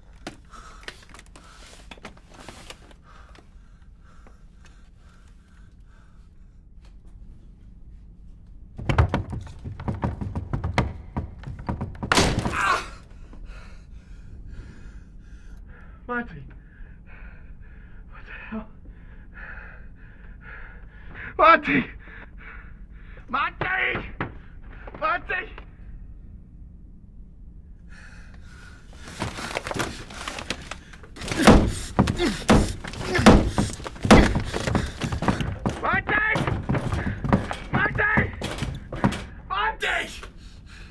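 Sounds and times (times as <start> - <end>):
low room hum: 0.0 - 40.9
man gasping and struggling: 0.2 - 6.3, 27.9 - 39.5
hollow knocks inside wooden cask: 8.8 - 12.5, 31.2 - 39.4.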